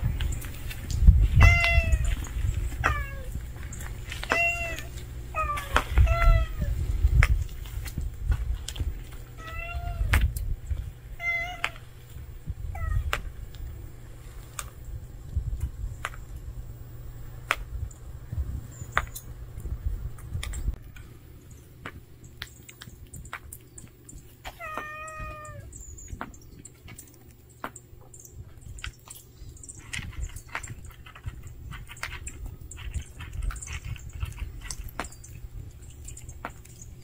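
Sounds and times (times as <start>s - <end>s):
low rumble: 0.0s - 21.5s
cat meowing: 1.3s - 3.4s, 4.1s - 6.8s, 9.4s - 10.2s, 11.2s - 11.8s, 12.7s - 13.2s, 24.5s - 25.7s.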